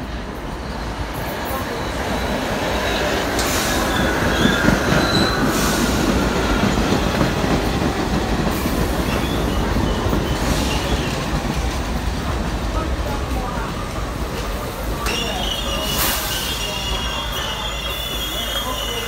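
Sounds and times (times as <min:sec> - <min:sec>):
subway train wheels rumbling: 0:00.0 - 0:19.0
high-pitched wheel squeals: 0:02.9 - 0:05.6, 0:15.1 - 0:19.0.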